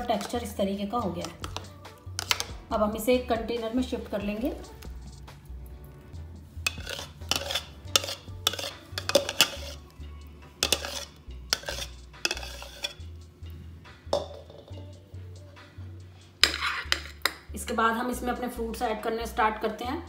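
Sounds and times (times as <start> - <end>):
spoon clinking on jar and dish: 6.7 - 9.8, 10.6 - 13.0, 16.4 - 17.4.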